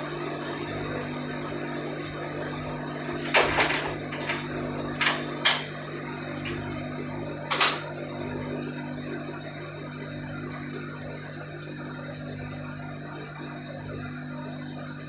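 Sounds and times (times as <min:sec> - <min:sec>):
machinery hum: 0:00.0 - 0:15.0
door handle and latch clicking: 0:07.5 - 0:07.9.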